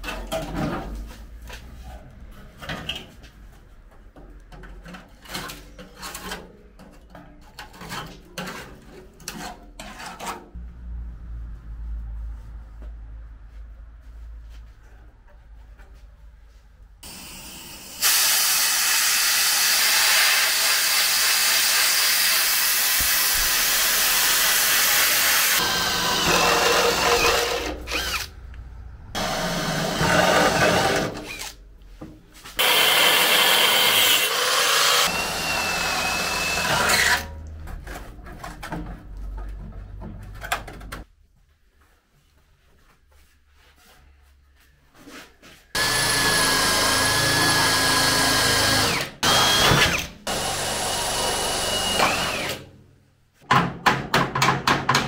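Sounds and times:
handheld power tool running: 17.0 - 28.3, 29.2 - 31.6, 32.6 - 37.3, 45.8 - 52.6.

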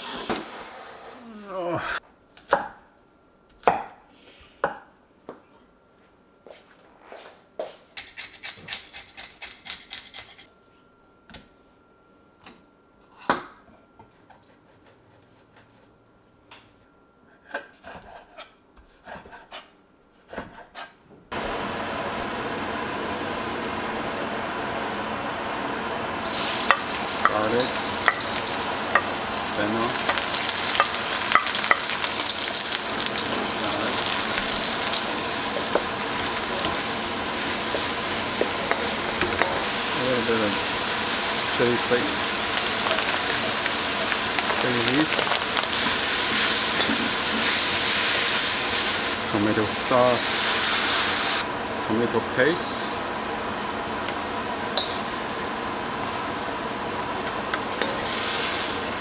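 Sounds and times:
vegetables sizzling in a wok: 21.4 - 59.0
wooden spatula scraping wok: 26.2 - 49.1
steady hiss: 26.2 - 53.0.

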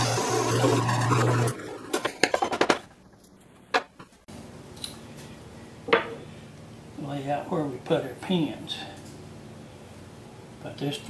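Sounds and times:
drill press motor humming: 0.0 - 1.6.

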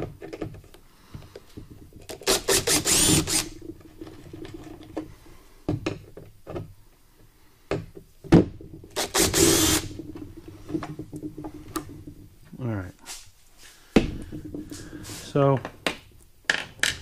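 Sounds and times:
cordless drill backing out screws: 2.2 - 3.6, 9.0 - 10.0.

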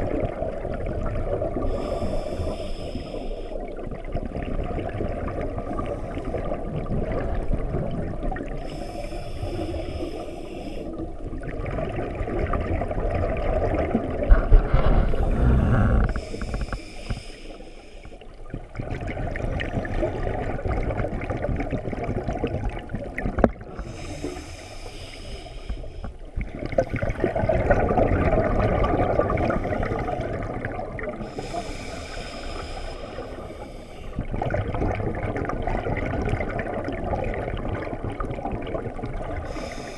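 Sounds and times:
gurgling exhaled bubbles: 0.0 - 10.2, 10.8 - 39.9
hissing regulator inhalations: 1.7 - 3.6, 8.6 - 11.0, 15.3 - 18.3, 23.8 - 26.3, 31.2 - 34.2, 39.5 - 39.9.

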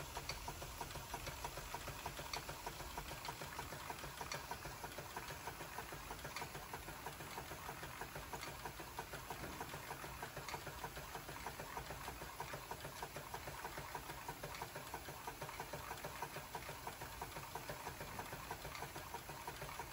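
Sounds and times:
toy steam engine clatter: 0.0 - 19.9.

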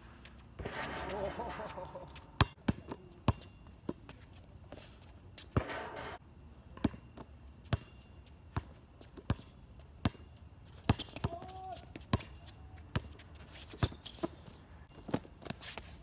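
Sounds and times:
basketball bouncing on hard court: 5.6 - 6.2.

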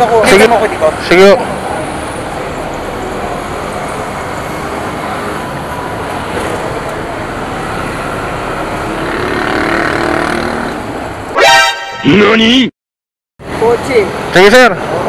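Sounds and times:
traffic noise: 0.0 - 12.7, 13.4 - 15.0.

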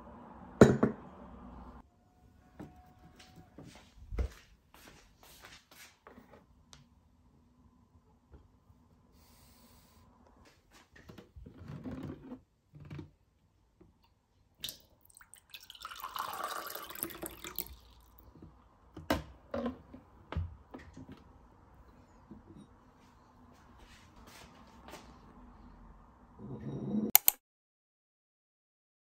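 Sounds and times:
water running from a tap: 15.1 - 18.1.

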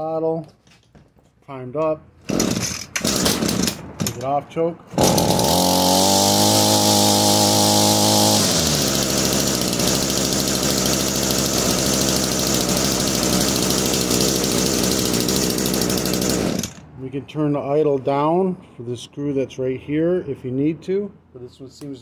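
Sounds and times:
trimmer two-stroke engine: 2.2 - 4.2, 4.9 - 16.9.

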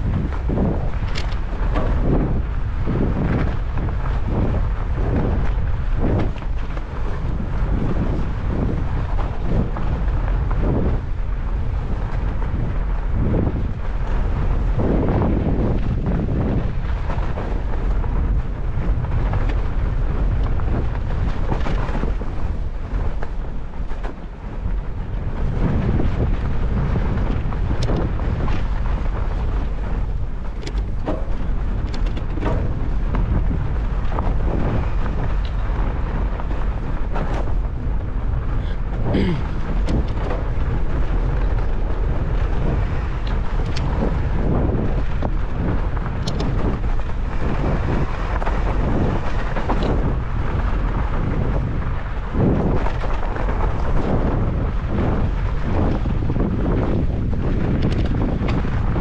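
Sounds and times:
wind rumbling on microphone: 0.0 - 59.0
bike clicks and knocks: 1.0 - 5.2, 27.3 - 51.2, 55.1 - 59.0.

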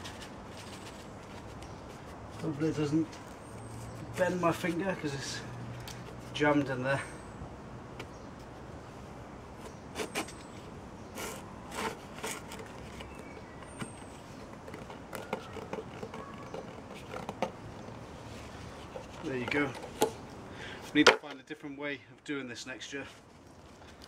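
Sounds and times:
plastic pipe scraping in soil: 11.1 - 20.1.

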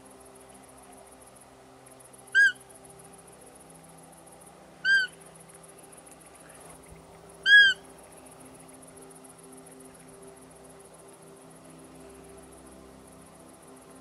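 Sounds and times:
deer high squeaking calls: 2.4 - 2.6, 4.8 - 5.2, 7.4 - 7.8.

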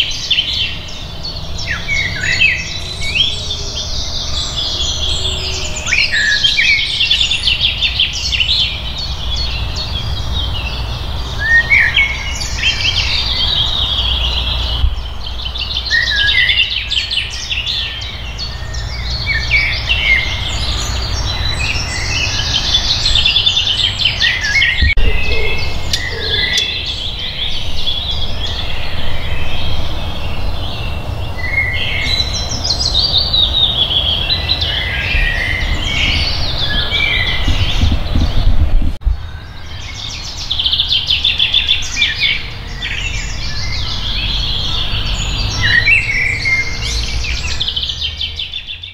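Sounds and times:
songbirds singing: 0.0 - 48.9
steady low rumble: 24.8 - 39.7.

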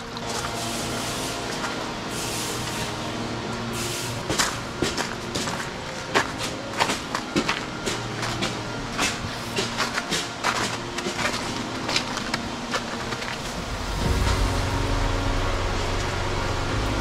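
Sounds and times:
steady low hum: 0.0 - 17.0
footsteps crunching on snow: 3.8 - 16.5
low rumble: 13.1 - 17.0.

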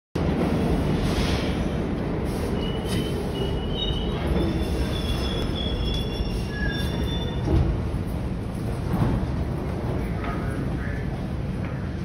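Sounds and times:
subway train rumble: 0.2 - 12.0
high-pitched wheel squeals: 2.6 - 7.6.

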